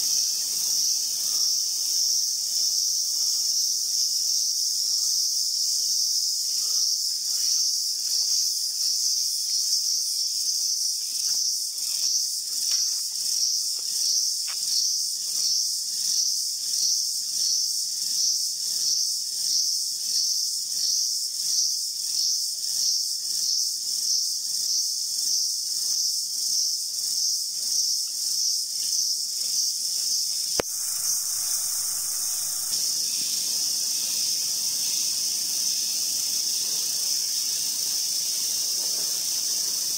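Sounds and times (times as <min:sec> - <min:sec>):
forest insects buzzing: 0:00.0 - 0:39.9
sharp click: 0:30.6 - 0:32.8.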